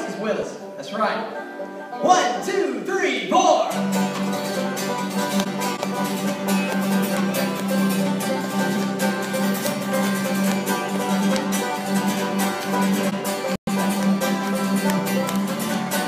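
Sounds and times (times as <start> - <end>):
acoustic guitar strumming: 0.0 - 16.0
banjos picking: 3.7 - 16.0.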